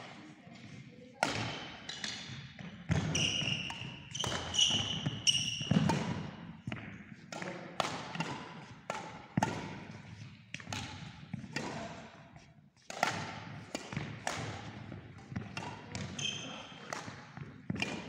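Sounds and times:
racket hitting shuttlecock: 1.2 - 18.0
shoe squeak on floor: 3.0 - 5.9, 16.1 - 16.9.

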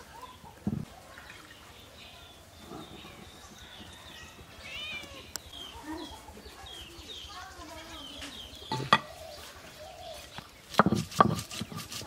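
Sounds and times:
cats meowing: 4.5 - 5.5.

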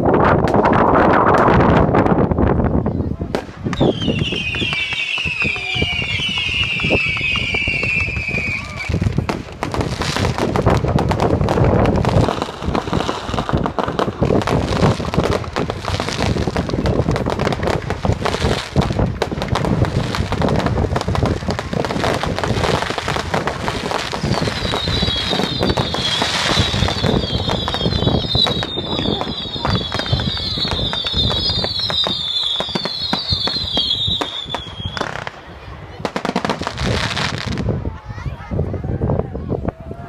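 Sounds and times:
fireworks bangs and crackling: 0.0 - 40.0
fireworks whistles: 3.4 - 35.4.

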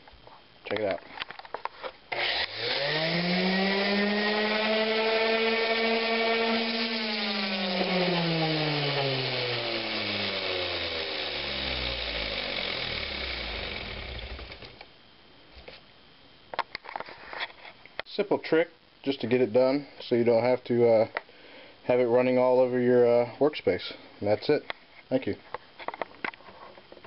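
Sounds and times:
orbital sander motor whining: 2.1 - 14.8.

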